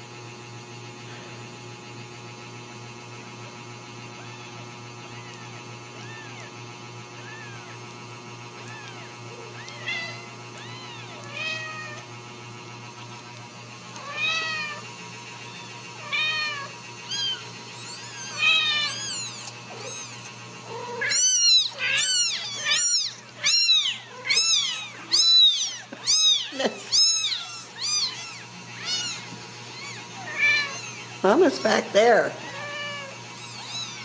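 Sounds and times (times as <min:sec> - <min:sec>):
kittens mewing: 0:04.0 - 0:13.2, 0:13.8 - 0:34.0.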